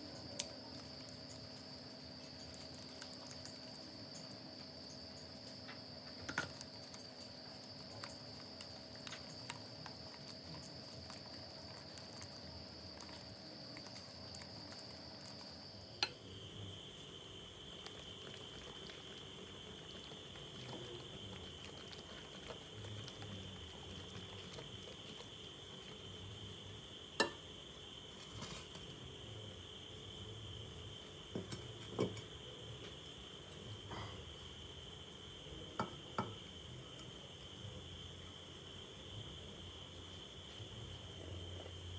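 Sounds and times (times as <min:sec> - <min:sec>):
high-pitched cricket-like trill: 0:00.0 - 0:17.8, 0:24.2 - 0:32.7
glass dish knocking on counter: 0:35.8 - 0:36.4.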